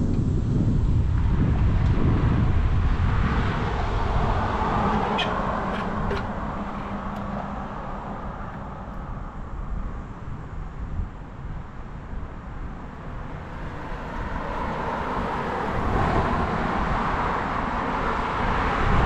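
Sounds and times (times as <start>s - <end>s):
wind rumbling on microphone: 0.0s - 19.0s
motor vehicle passing: 2.3s - 9.4s.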